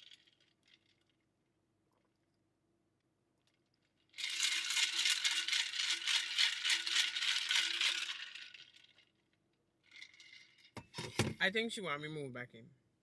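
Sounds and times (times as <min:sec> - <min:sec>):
tumbler contents rattling: 0:00.0 - 0:01.2, 0:03.5 - 0:10.8.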